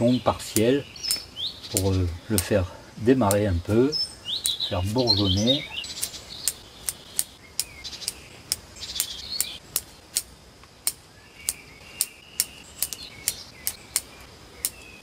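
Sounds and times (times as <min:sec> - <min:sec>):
small birds chirping: 0:00.0 - 0:15.0
sharp clicks: 0:00.5 - 0:02.6, 0:03.2 - 0:03.5, 0:04.4 - 0:04.6, 0:05.9 - 0:14.9.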